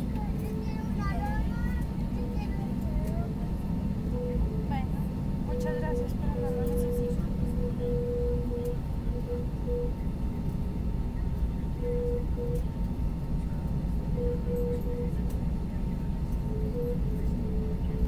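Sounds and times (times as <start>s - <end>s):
aircraft cabin engine rumble: 0.0s - 18.0s
faint steady whine: 0.0s - 18.0s.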